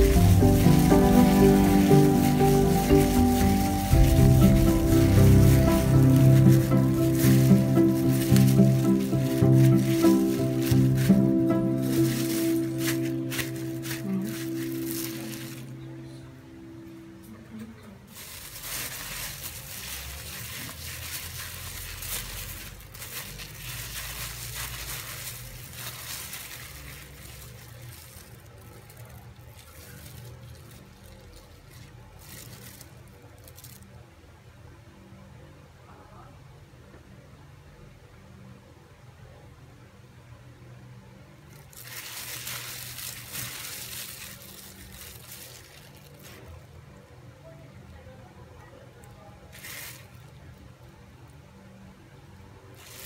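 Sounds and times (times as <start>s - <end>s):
plastic bag crinkling: 0.0s - 16.0s, 18.0s - 34.0s, 41.5s - 46.9s, 49.5s - 50.8s, 52.8s - 53.0s.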